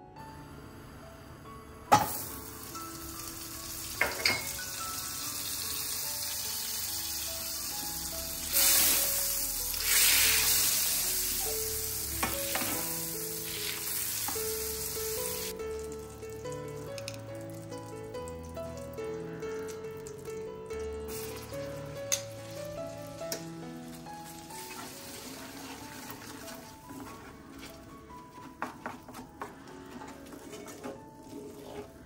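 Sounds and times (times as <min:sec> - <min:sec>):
butter sizzling in a pan: 0:02.1 - 0:15.5, 0:21.1 - 0:26.6.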